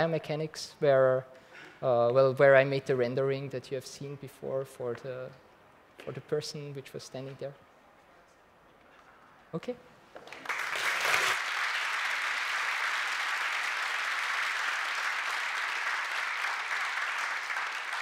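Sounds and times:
audience applause: 10.2 - 18.0.

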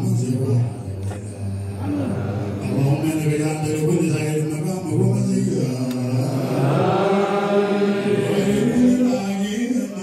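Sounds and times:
men chanting in low held notes: 0.0 - 10.0.

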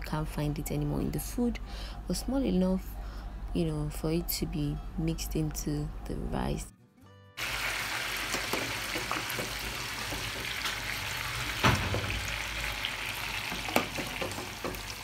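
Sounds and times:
sausage deep-frying in oil: 7.4 - 15.0.

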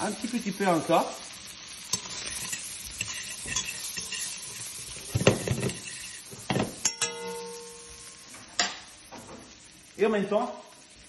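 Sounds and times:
meat sizzling in a pan: 0.0 - 11.0
metal tongs scraping a pan: 1.9 - 8.9.

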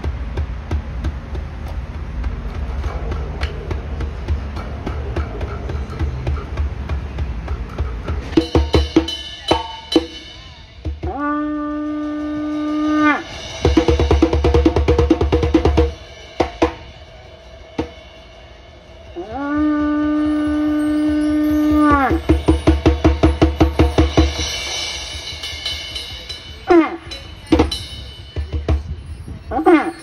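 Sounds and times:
hand drum strokes: 0.0 - 30.0
animal horn blast: 11.0 - 13.4, 19.2 - 22.2.

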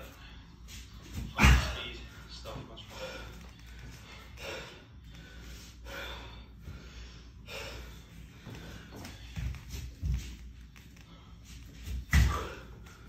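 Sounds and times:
man breathing hard: 2.8 - 9.7.

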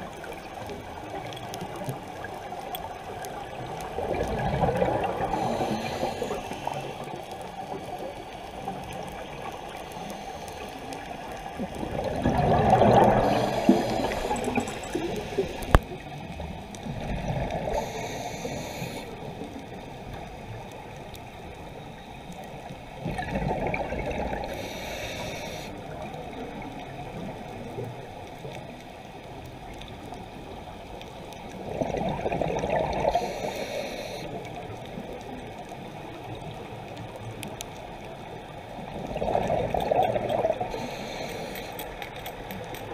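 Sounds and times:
exhaled bubbles: 3.5 - 7.1, 11.5 - 16.2, 16.8 - 18.6, 23.0 - 24.7, 31.6 - 33.5, 38.8 - 41.0
diver breathing through regulator: 5.2 - 7.0, 12.7 - 15.8, 17.6 - 19.2, 24.5 - 25.8, 33.0 - 34.4, 40.6 - 41.9.

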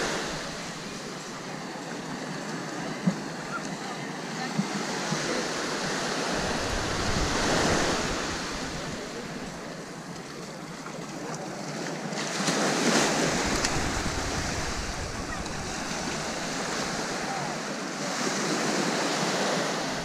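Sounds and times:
small waves on sandy beach: 0.0 - 20.0
wind rumbling on microphone: 5.2 - 10.2, 13.0 - 17.3.

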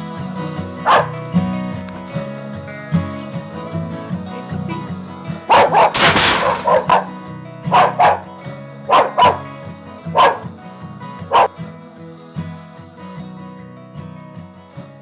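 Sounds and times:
guitar music: 0.0 - 15.0
dog barking: 0.8 - 1.2, 5.5 - 8.3, 8.9 - 9.5, 10.1 - 10.5, 11.2 - 11.5.

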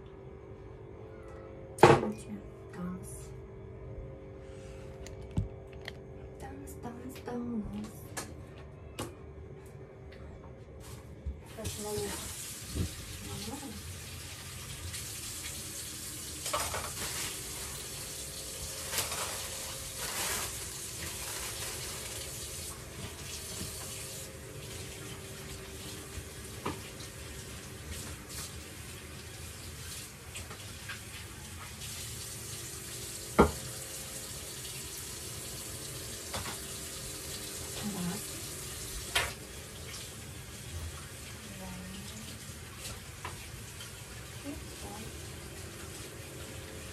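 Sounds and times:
tap running into metal sink: 33.3 - 33.7.

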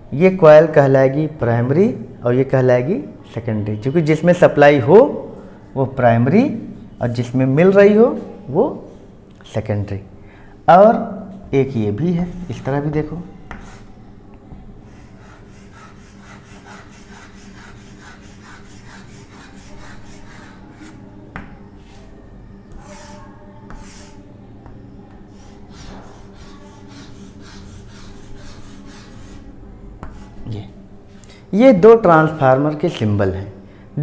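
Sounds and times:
chalk taps: 13.5 - 13.9, 22.7 - 29.4, 30.0 - 30.4
chalk scratching on chalkboard: 13.5 - 14.0, 14.9 - 21.0, 22.7 - 24.2, 25.3 - 30.5.

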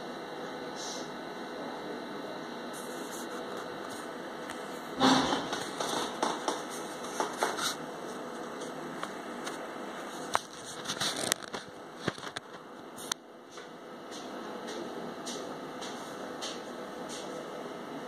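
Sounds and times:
sharp clicks and crackles: 10.3 - 13.2.

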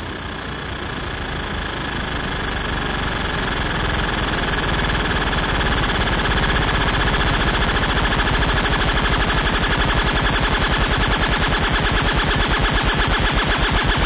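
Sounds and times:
gritty buzzing synth noise: 0.0 - 14.0
rapid stuttering pulse: 0.0 - 14.0.

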